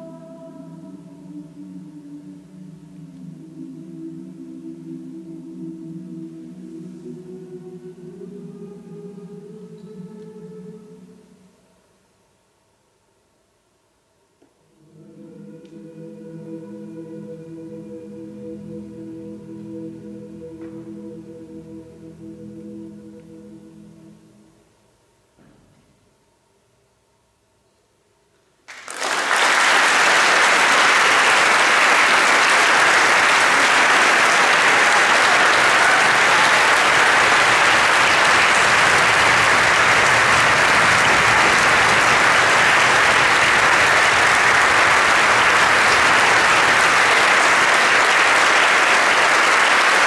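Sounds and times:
audience applause: 28.7 - 50.0.

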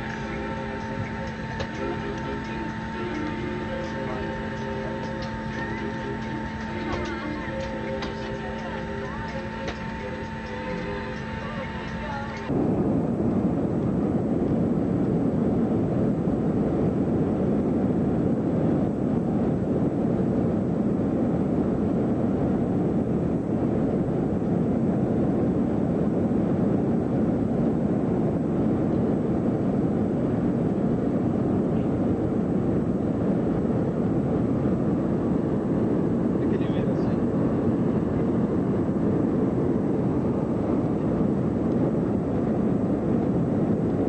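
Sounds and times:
jet airliner cabin noise: 0.0 - 44.0.

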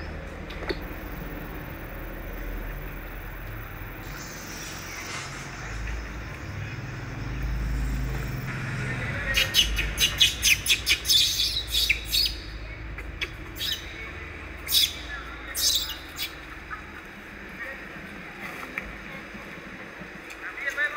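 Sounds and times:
low rumble: 0.9 - 10.7
high-pitched chirping calls: 9.3 - 12.6, 13.2 - 13.9.

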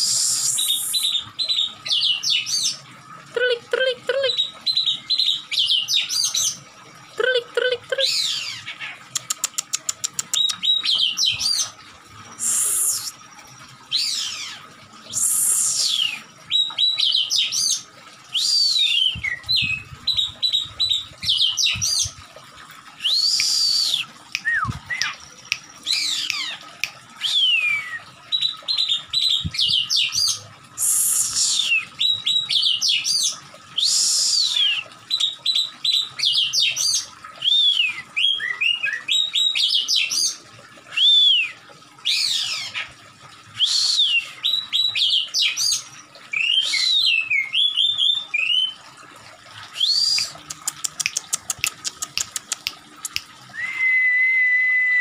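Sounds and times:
bird singing whistles: 23.0 - 25.2, 53.5 - 55.0.

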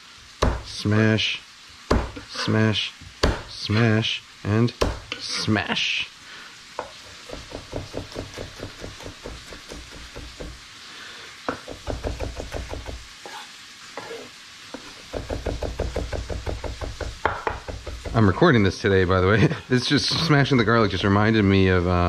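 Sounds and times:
knife chopping on wooden board: 0.4 - 0.7, 1.9 - 2.4, 3.2 - 3.5, 4.8 - 5.2, 6.8 - 10.6, 11.5 - 13.4, 14.0 - 18.2.

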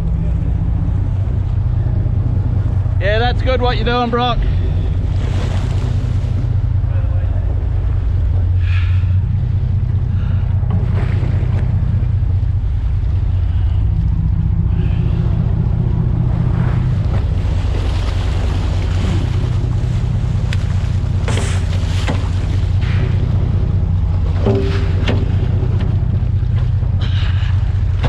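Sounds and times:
boat engine running: 0.0 - 28.0
water rushing along hull: 0.0 - 28.0
sharp water splash: 16.8 - 23.4.

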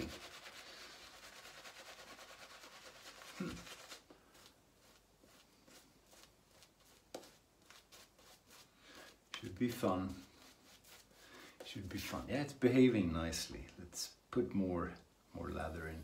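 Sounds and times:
shaving brush scrubbing lather: 0.0 - 12.2.

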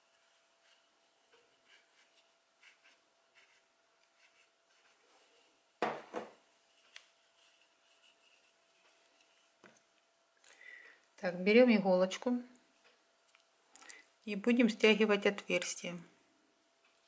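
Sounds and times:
rustling and scratching of stuffing: 0.0 - 5.7, 6.4 - 10.2
knocks: 5.8 - 6.4.

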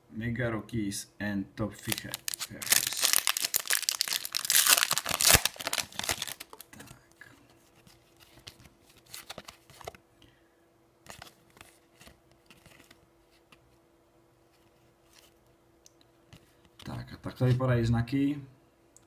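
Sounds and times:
foil packet crinkling and ripping: 1.8 - 6.7.

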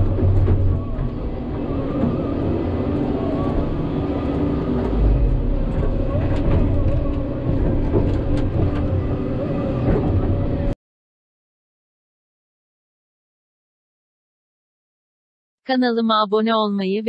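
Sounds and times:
excavator diesel engine: 0.0 - 10.8.

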